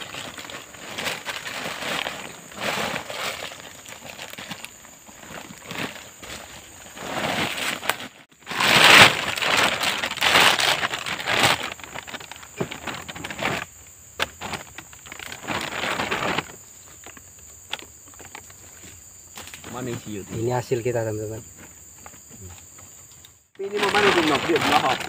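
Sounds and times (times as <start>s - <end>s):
plastic bag crinkling: 0.0s - 16.6s, 23.6s - 25.0s.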